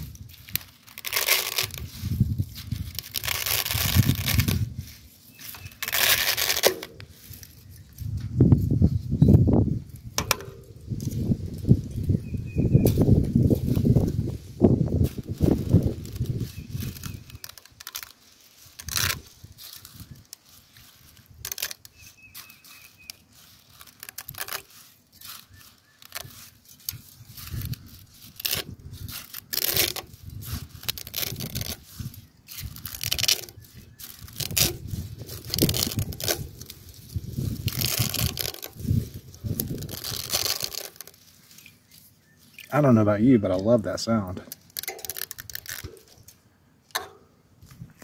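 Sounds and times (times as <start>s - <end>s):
dry spaghetti snapping: 0.0s - 8.1s, 14.9s - 41.8s, 44.4s - 47.2s.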